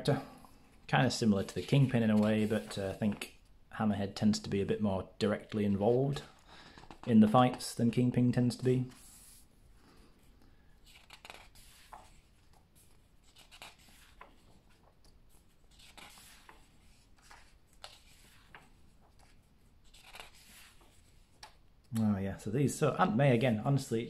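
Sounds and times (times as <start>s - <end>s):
pages being turned: 1.4s - 3.2s, 10.8s - 21.6s.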